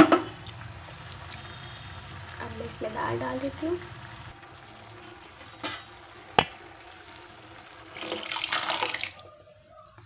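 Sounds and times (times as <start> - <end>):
low sizzle: 0.0 - 10.0
liquid pouring and splashing: 4.1 - 9.4.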